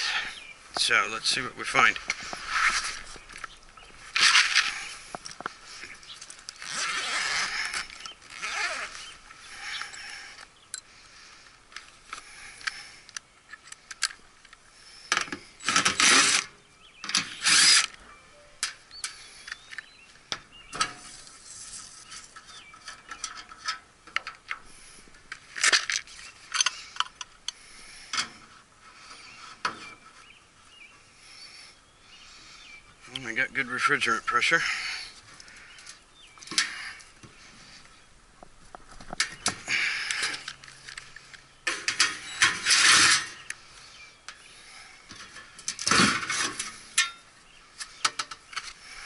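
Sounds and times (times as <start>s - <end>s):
loud rasping bursts: 15.6s - 16.5s, 17.2s - 17.9s
tools clicking and rattling: 25.3s - 28.3s, 39.1s - 43.6s.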